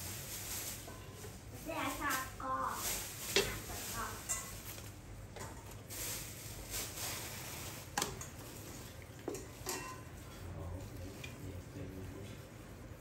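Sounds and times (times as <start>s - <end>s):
kitchenware knocks and clinks: 9.3s - 10.1s.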